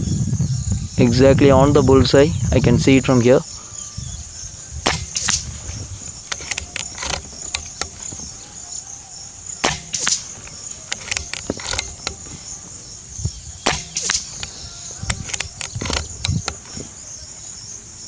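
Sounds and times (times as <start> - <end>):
crickets chirring: 0.0 - 18.0
sharp knock after shot: 4.8 - 5.6, 9.6 - 12.3, 13.7 - 14.5
air rifle shots: 4.8 - 8.4, 9.6 - 12.7, 13.6 - 16.8
rifle reloading clicks: 4.9 - 5.5, 6.2 - 8.4, 9.6 - 12.5, 13.7 - 16.8.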